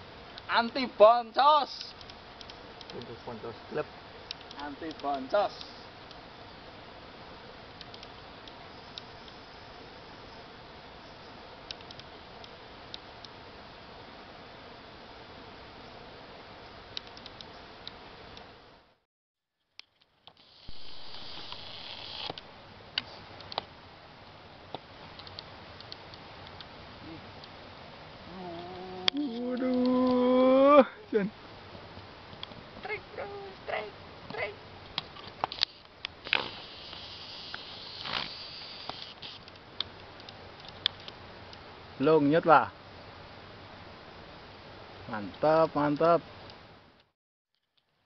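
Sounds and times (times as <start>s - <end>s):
insect buzzing: 0.0s - 14.0s, 20.3s - 23.3s, 25.2s - 31.2s, 32.7s - 39.5s
steady hiss: 0.0s - 19.0s, 20.1s - 47.1s
sharp ticks: 1.7s - 3.2s, 4.3s - 6.2s, 7.8s - 9.4s, 35.4s - 41.6s
sharp clicks: 1.8s - 3.1s, 4.3s - 6.2s, 7.8s - 9.1s, 11.7s - 13.0s, 17.0s - 18.5s, 24.7s - 26.7s.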